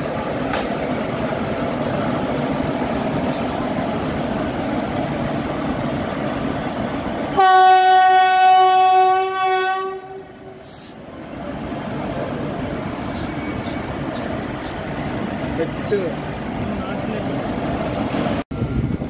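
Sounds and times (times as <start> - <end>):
trains rumbling on rails: 0.0 - 19.0
train horn: 7.3 - 10.6.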